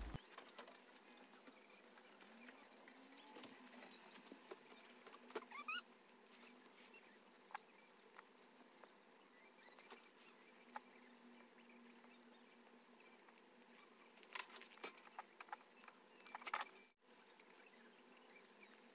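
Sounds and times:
thread squeak: 3.2 - 16.9.

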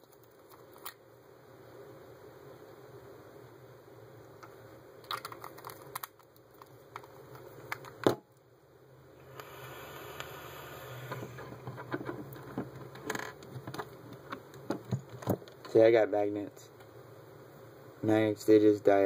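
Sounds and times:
crackling hiss of vape coil: 9.2 - 11.8.

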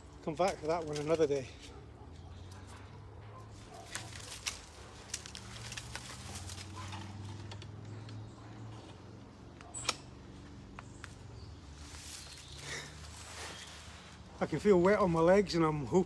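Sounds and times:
twigs snapping and rustling: 0.1 - 1.7, 3.5 - 8.4, 9.5 - 13.7
sharp branch crack: 0.2 - 1.8, 3.6 - 8.2, 9.5 - 13.7.

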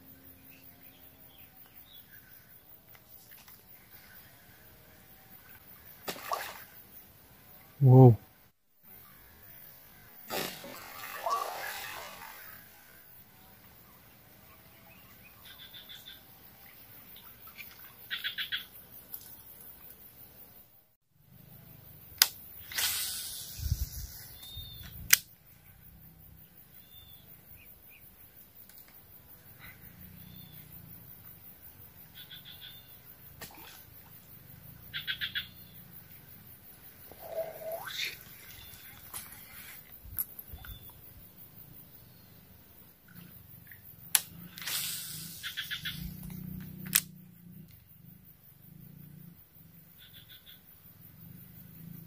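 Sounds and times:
faint bird chirps: 0.0 - 6.0, 11.0 - 18.9, 22.6 - 28.4, 29.3 - 33.8, 34.8 - 44.4, 45.0 - 46.8, 49.9 - 52.0
fishing line whizzing: 6.0 - 6.8, 10.2 - 12.8, 22.2 - 25.3, 37.1 - 39.9, 44.1 - 47.0.

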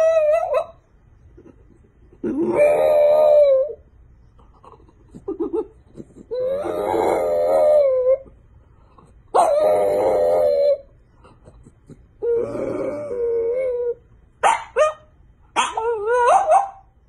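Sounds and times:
dog howling: 0.0 - 0.8, 2.2 - 3.9, 6.3 - 8.4, 9.3 - 11.0, 12.2 - 14.1, 14.7 - 16.9
dog whining: 0.0 - 16.9.

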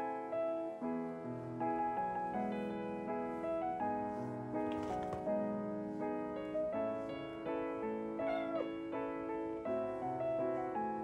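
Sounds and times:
gentle piano music: 0.0 - 11.0
kitten meowing: 8.2 - 8.8.

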